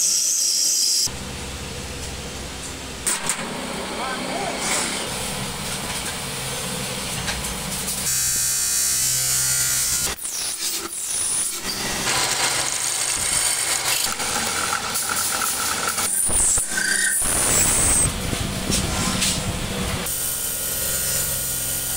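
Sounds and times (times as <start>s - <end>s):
electric motor humming: 8.0s - 21.9s.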